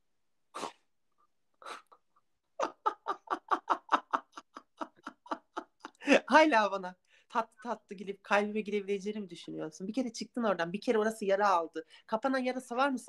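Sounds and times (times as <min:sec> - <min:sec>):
men laughing: 0:02.6 - 0:06.3.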